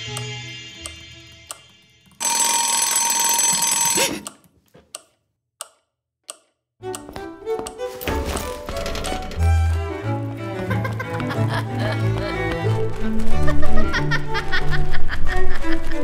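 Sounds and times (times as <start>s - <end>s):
alarm clock ringing: 2.2s - 4.3s
clock ticking: 2.2s - 7.0s.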